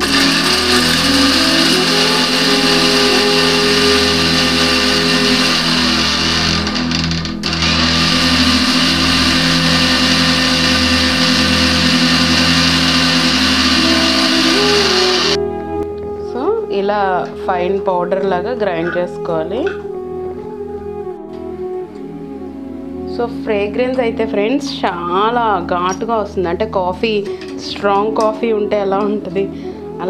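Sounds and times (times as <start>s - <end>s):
electric mixer grinder running: 0.0s - 15.4s.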